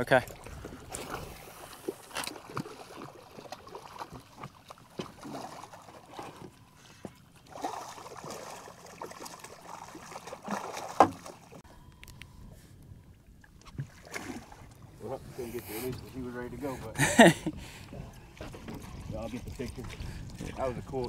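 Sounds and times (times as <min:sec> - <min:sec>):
water splashing and lapping: 0:00.0 - 0:11.7, 0:13.0 - 0:21.0
knocks on boat: 0:11.0 - 0:11.4.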